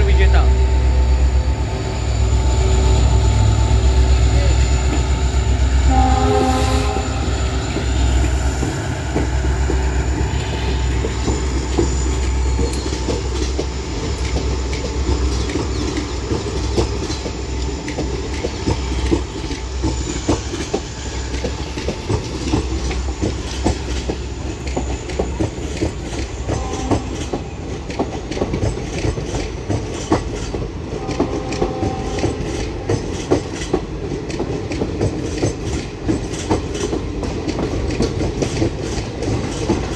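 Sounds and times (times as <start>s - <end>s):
locomotive engine rumble: 0.0s - 31.1s
train rumble: 0.0s - 39.9s
train wheels clickety-clack: 1.3s - 39.9s
train horn: 5.6s - 7.8s, 26.4s - 27.6s, 30.9s - 33.0s.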